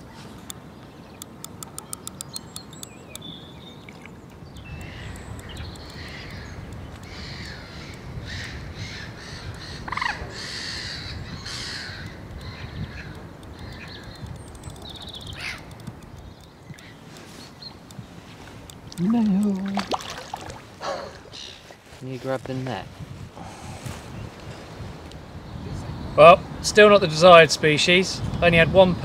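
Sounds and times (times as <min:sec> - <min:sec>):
fishing reel drag ticking: 0:01.2 - 0:03.3, 0:12.0 - 0:17.3
crows cawing: 0:05.9 - 0:14.2, 0:15.3 - 0:15.7.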